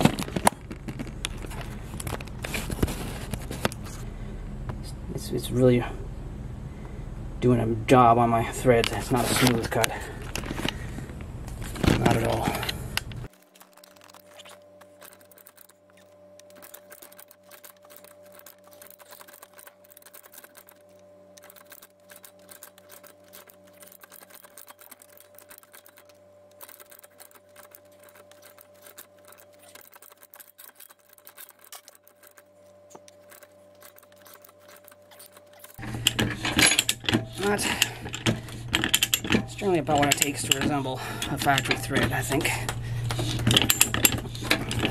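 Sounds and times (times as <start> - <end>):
faint hum: 0.0 - 44.9
rapid ratchet clicks: 13.0 - 44.9.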